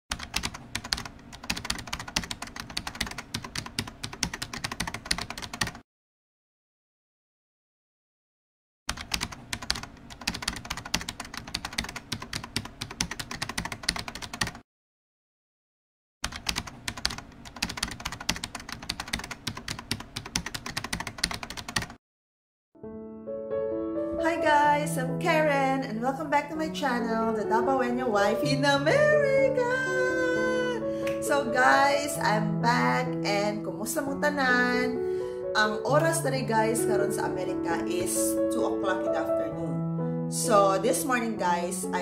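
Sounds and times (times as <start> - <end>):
keyboard typing: 0.1 - 5.8, 8.9 - 14.6, 16.2 - 22.0.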